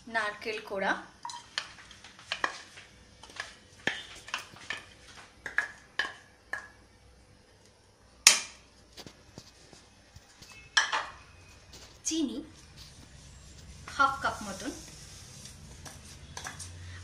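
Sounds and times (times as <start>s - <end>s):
bowl and spatula tapping pan: 3.2s - 6.8s, 15.8s - 16.7s.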